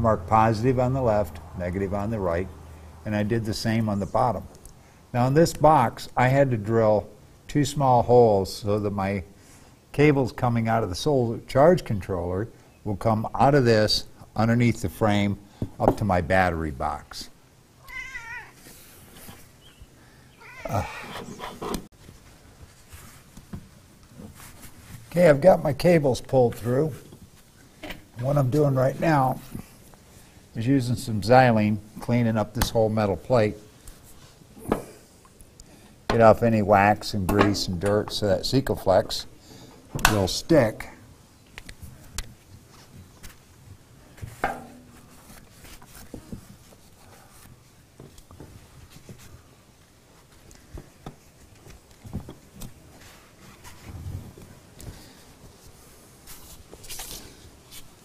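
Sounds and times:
cat meowing: 0:17.8 - 0:18.6, 0:20.4 - 0:21.1
cloth rubbing metal panel: 0:20.9 - 0:21.9.

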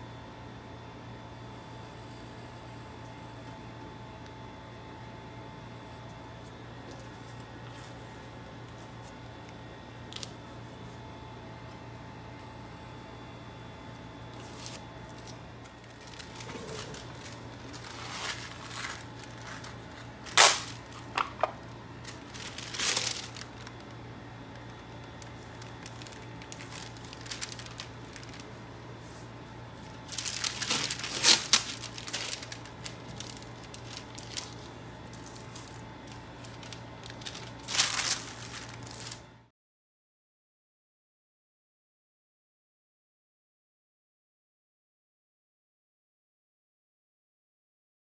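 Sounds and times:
paper crinkling: 0:14.3 - 0:39.2
masking tape pulled and torn: 0:16.4 - 0:21.1, 0:30.1 - 0:34.6.

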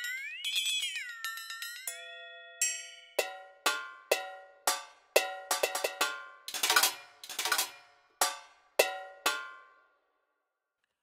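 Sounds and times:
metal hand percussion strikes: 0:01.4 - 0:09.8.

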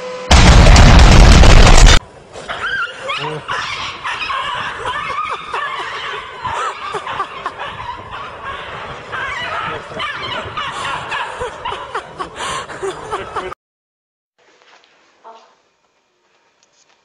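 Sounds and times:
outdoor background noise: 0:00.0 - 0:13.5, 0:14.4 - 0:17.0
people laughing: 0:04.2 - 0:08.1, 0:09.4 - 0:13.6.

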